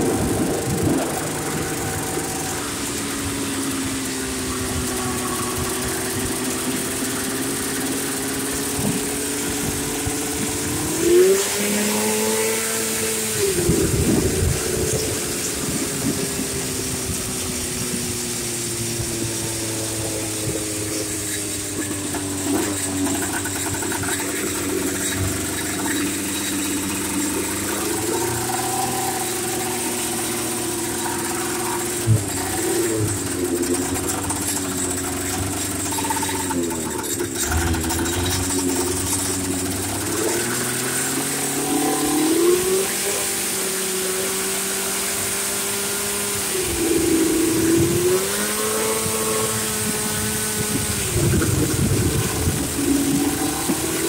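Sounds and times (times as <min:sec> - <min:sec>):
golf cart engine running: 0:00.0 - 0:54.0.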